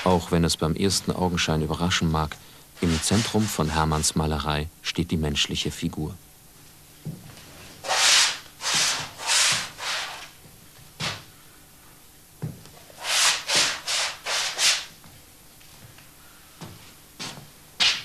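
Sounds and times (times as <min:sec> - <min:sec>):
paintbrush scratchy strokes: 0:02.8 - 0:04.2.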